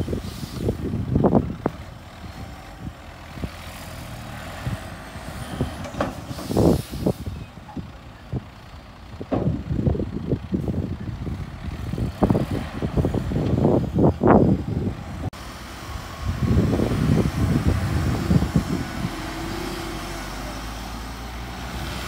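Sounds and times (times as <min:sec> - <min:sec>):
dirt load rumbling: 0:00.0 - 0:22.0
dump truck engine running: 0:00.0 - 0:22.0
air hiss: 0:06.2 - 0:07.4.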